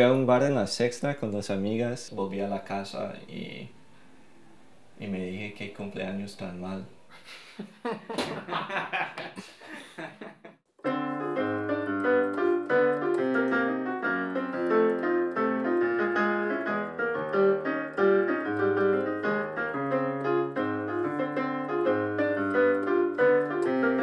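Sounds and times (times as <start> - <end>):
piano music: 10.8 - 24.0.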